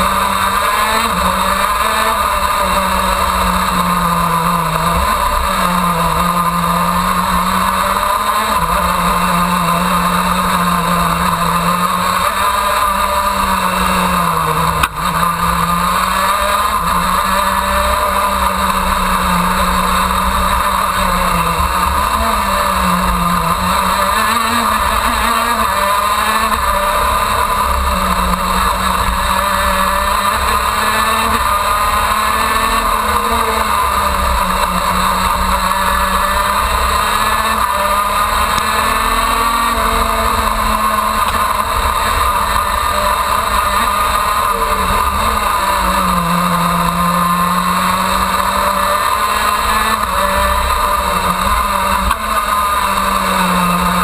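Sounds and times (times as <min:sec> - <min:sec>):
kart two-stroke engine racing: 0:00.0 - 0:54.0.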